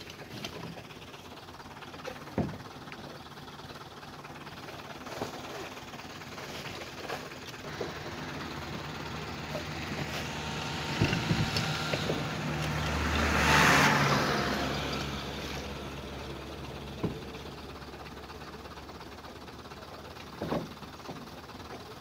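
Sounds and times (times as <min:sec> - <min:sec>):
truck driving on gravel: 0:00.0 - 0:22.0
rattling knocks: 0:09.5 - 0:12.9.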